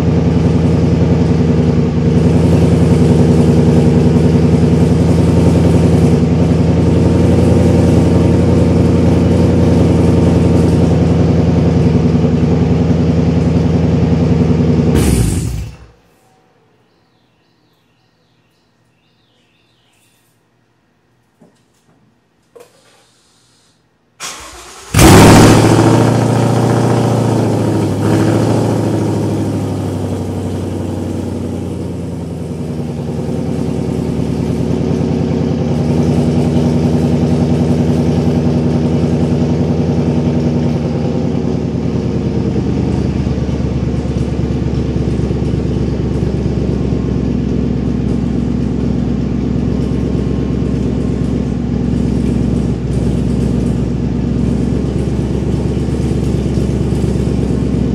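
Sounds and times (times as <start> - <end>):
car engine idling loudly: 0.0 - 15.9, 24.3 - 57.9
car engine cranking: 24.2 - 28.2, 41.2 - 57.9.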